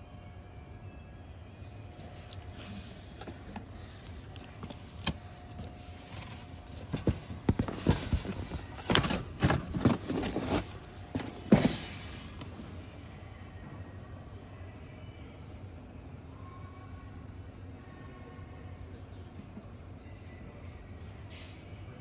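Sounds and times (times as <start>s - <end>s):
faint store hum: 0.0s - 22.0s
cardboard box knocking and scraping: 6.0s - 12.6s.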